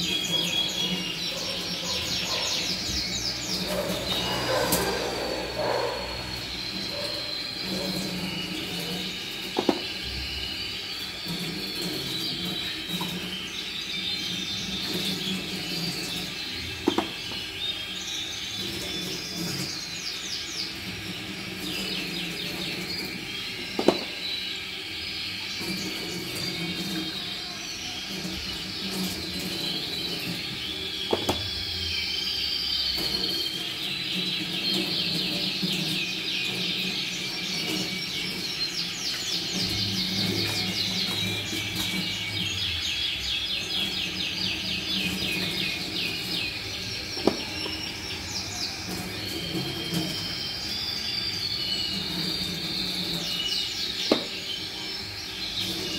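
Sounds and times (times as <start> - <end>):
plastic drinkers clacking: 0.0 - 10.4, 11.1 - 20.6, 21.5 - 24.4, 25.6 - 31.8, 33.0 - 55.9
canaries singing: 0.0 - 55.9
tap running into steel sink: 8.8 - 10.0, 16.8 - 17.5, 23.8 - 24.2, 31.1 - 31.5, 47.2 - 47.8, 54.1 - 54.4.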